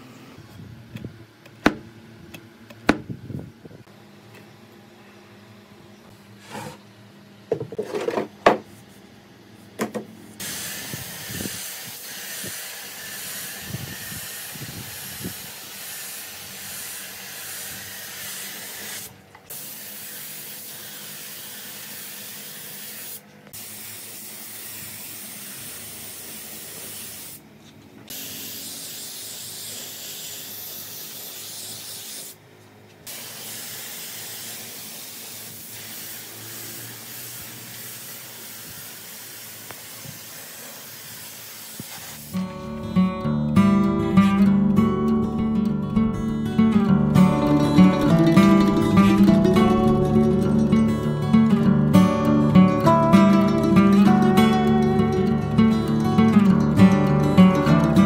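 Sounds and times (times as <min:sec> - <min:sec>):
spray gun hissing: 0:10.4 - 0:27.4, 0:28.1 - 0:32.4, 0:33.0 - 0:42.4, 0:46.0 - 0:50.6.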